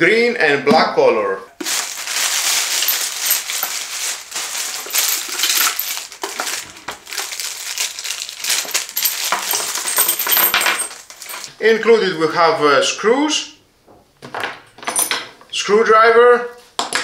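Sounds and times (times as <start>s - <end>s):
plastic bag crinkling: 1.6s - 11.5s.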